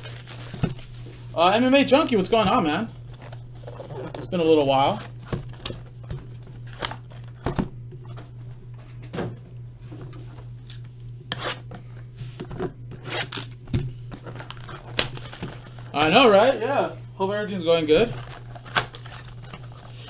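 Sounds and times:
cardboard and foil packs ripping: 0.0 - 1.3, 2.9 - 7.4, 13.0 - 16.7, 18.0 - 20.0
steady low hum: 0.0 - 20.0.

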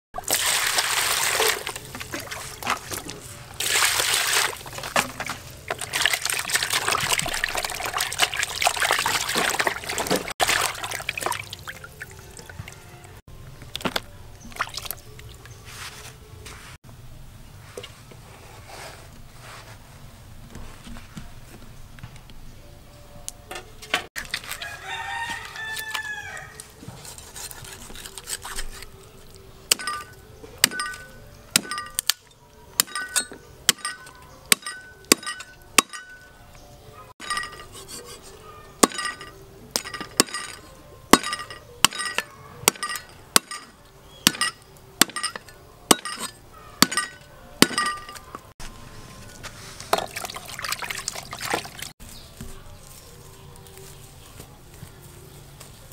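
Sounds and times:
rooster crowing: 12.2 - 13.2, 24.5 - 26.8
cleaver chopping on wooden block: 41.1 - 48.0.

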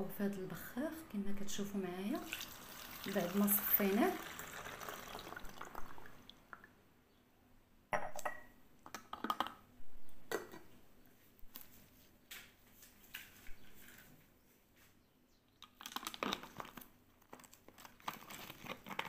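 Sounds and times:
liquid trickling through a funnel: 2.2 - 6.7.

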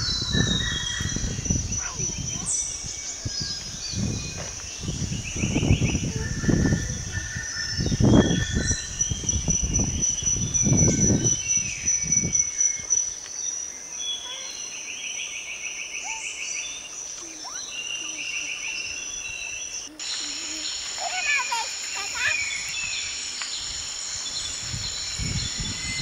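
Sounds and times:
wind buffeting microphone: 0.0 - 12.5, 22.0 - 26.0
birds chirping: 0.0 - 26.0
insect trills: 0.0 - 26.0
insects buzzing: 0.0 - 26.0.

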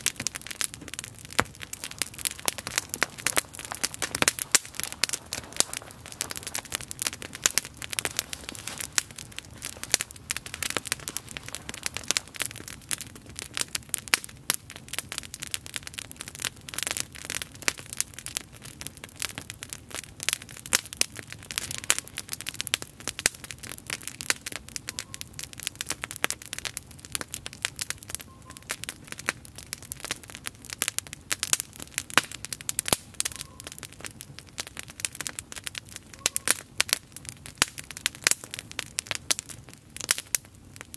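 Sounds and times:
campfire crackling: 0.0 - 40.9.

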